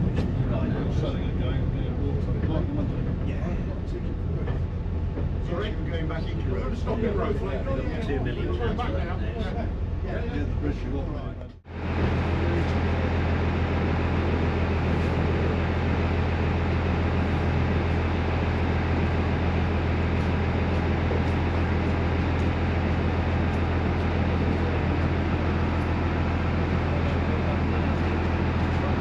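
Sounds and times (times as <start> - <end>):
railcar engine hum: 0.0 - 29.0.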